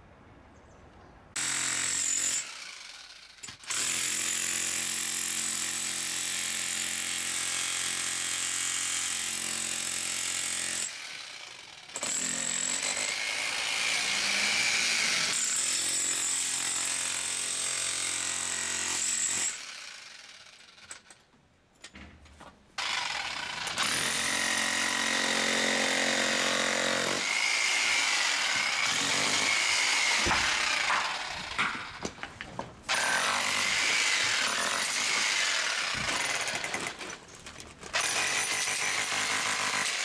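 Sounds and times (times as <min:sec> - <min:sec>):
demolition hammer breaking stone: 0:30.0 - 0:32.2
knocks: 0:30.2 - 0:32.7.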